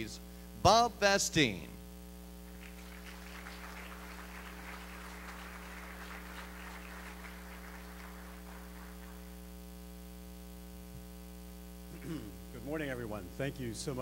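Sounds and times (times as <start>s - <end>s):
electrical mains hum: 0.0s - 14.0s
audience applause: 2.5s - 9.4s.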